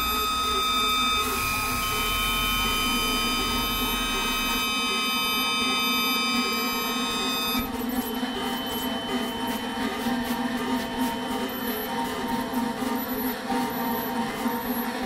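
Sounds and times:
high-pitched buzzing tones: 0.0 - 11.8.

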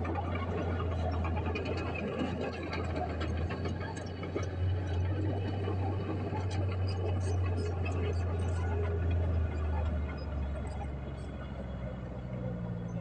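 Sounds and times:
bulldozer diesel engine droning: 0.0 - 13.0.

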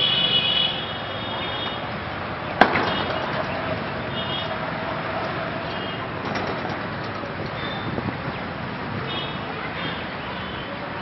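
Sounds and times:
outdoor town ambience: 0.0 - 11.0
sharp crack: 2.5 - 7.4.

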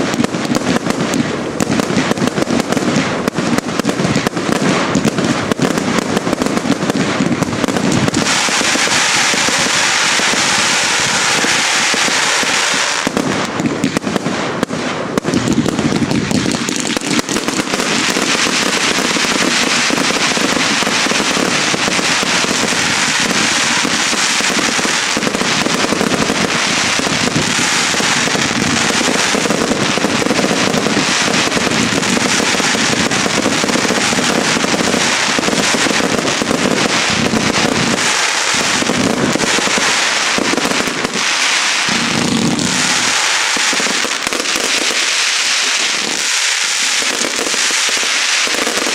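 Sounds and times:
fireworks launching and bursting: 0.0 - 48.9
steady hiss: 36.8 - 48.9.

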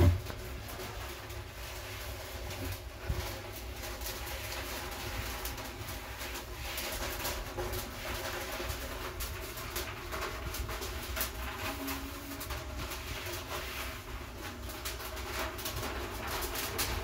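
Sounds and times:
cloth rubbing on hard surface: 0.0 - 17.0.

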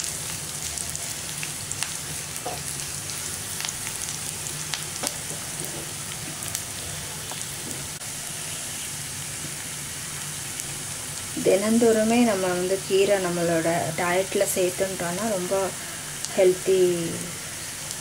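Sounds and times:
onions sizzling in oil: 0.0 - 18.0
spatula stirring pan: 1.0 - 3.3.

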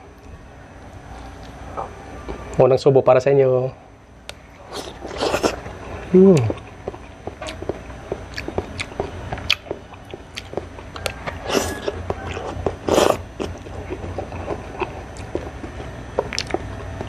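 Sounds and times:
wet chewing: 4.3 - 17.0.

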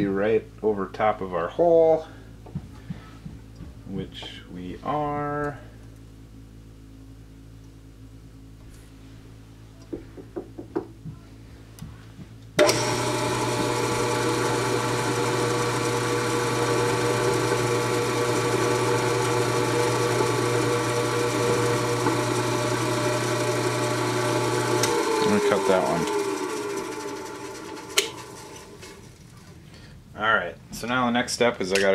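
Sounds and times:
milling machine spindle whine: 12.6 - 29.1.

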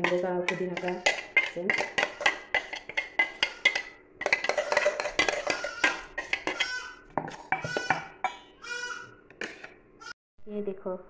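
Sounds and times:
spoon scraping and clinking on metal: 0.0 - 8.5.

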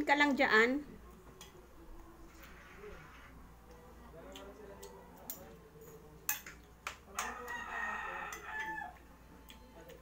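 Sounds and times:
cutlery clinking on plate: 5.3 - 7.5
rooster crowing: 7.2 - 9.0.

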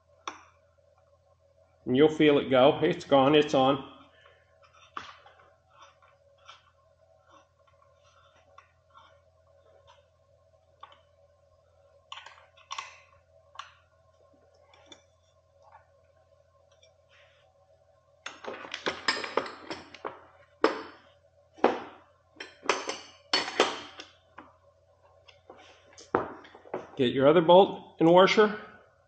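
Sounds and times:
faint steady hum: 0.0 - 29.0.

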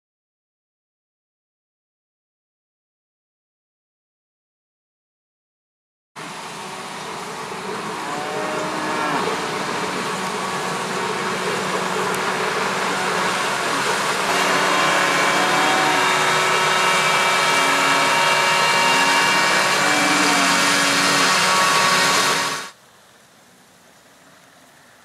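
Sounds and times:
high whine from chopping: 6.2 - 22.7
forage harvester diesel drone: 6.2 - 22.8.

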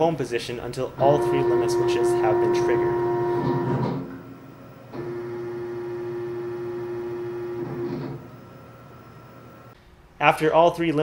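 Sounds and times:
stepper motors whining: 0.6 - 9.0.

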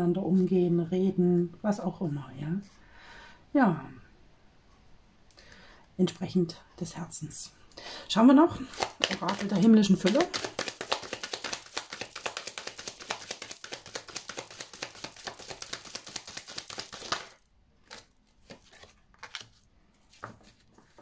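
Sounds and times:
cards being shuffled: 8.6 - 21.0.

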